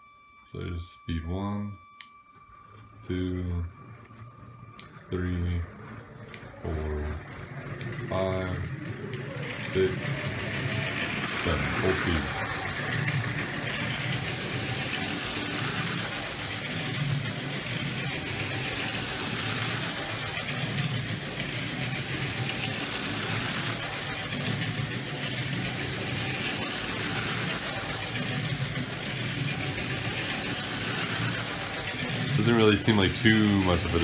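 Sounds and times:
toy train motor whirring: 2.1 - 34.0
wheels rumbling on plastic track: 2.5 - 34.0.

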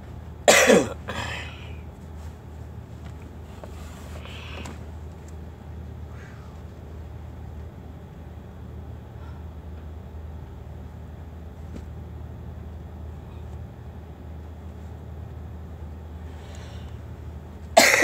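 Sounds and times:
man coughing: 0.5 - 1.8, 17.8 - 18.0.

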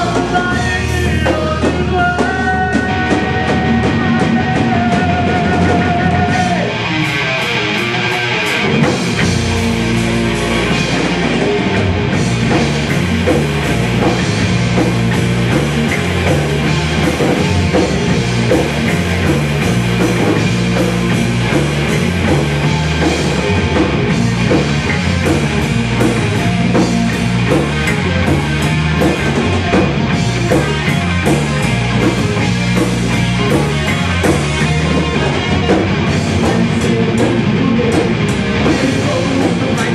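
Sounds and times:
distorted electric guitars: 0.0 - 39.9
fast drum kit: 0.0 - 39.9
bass and kick drum: 8.7 - 39.9.

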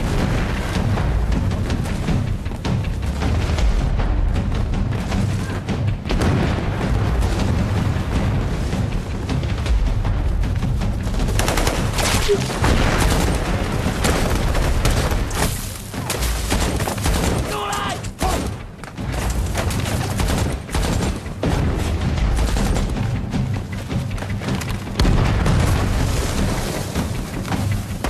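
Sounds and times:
deep booms: 6.0 - 10.9, 25.0 - 27.1
rifle and machine-gun fire: 11.3 - 18.6, 19.5 - 23.1
man shouting: 17.5 - 18.5.

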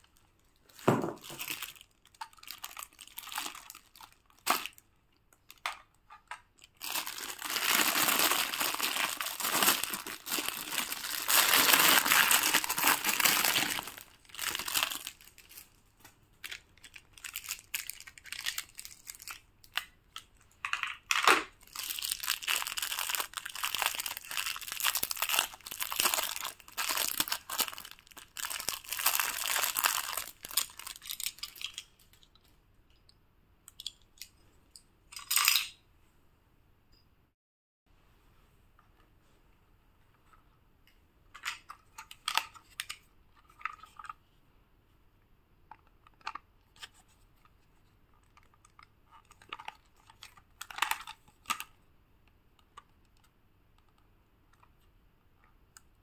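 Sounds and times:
packaging crinkling and tearing: 0.7 - 4.8, 6.6 - 15.7, 16.4 - 20.0, 21.1 - 31.8.

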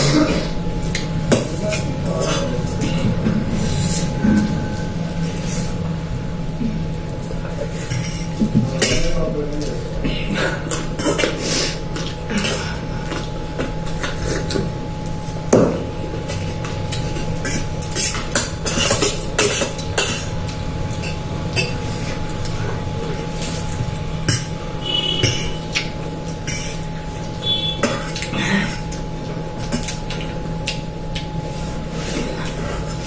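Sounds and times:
electrical hum: 0.0 - 33.0.

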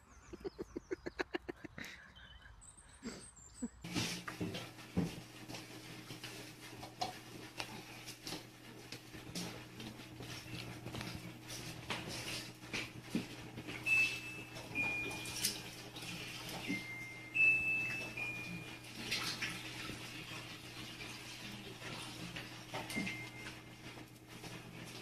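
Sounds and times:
cats crunching dry kibble: 7.3 - 13.0.

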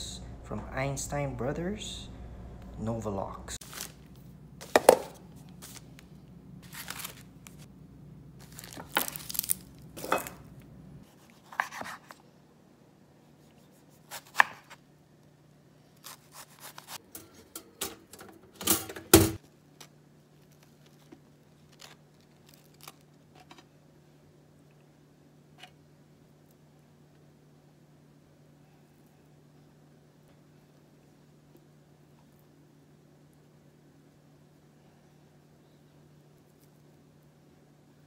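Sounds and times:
plastic packaging rustling: 3.6 - 7.7, 8.4 - 10.1, 20.4 - 23.6
knife slicing on cutting board: 11.1 - 12.2.

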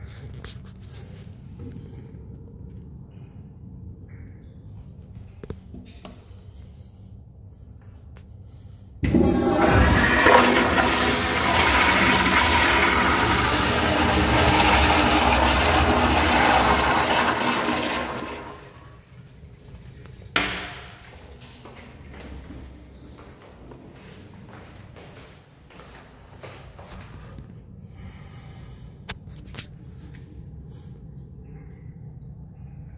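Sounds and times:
toilet flushing: 9.0 - 21.3.

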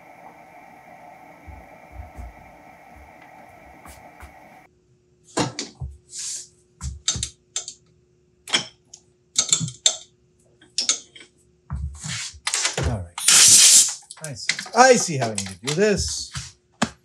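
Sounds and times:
faint steady hum: 0.0 - 5.2.

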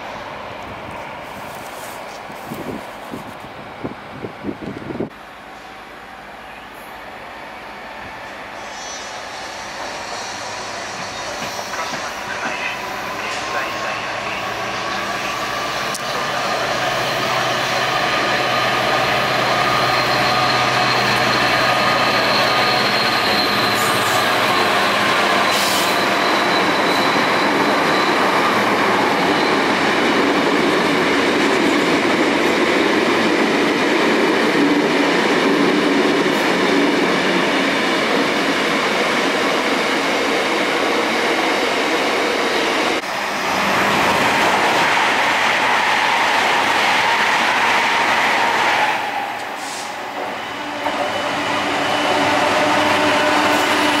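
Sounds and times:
train rumbling: 0.0 - 54.0.

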